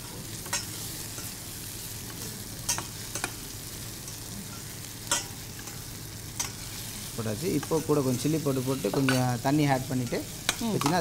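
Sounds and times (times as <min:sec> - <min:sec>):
food sizzling in oil: 0:00.0 - 0:11.0
metal spoon clinking on pan: 0:00.4 - 0:01.4, 0:02.7 - 0:03.4, 0:04.0 - 0:05.8, 0:06.4 - 0:06.6, 0:08.8 - 0:11.0.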